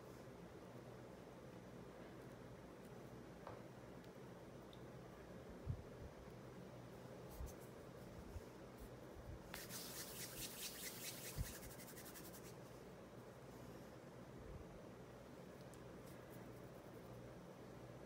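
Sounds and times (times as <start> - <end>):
scratchy rubbing of clay: 9.6 - 12.6.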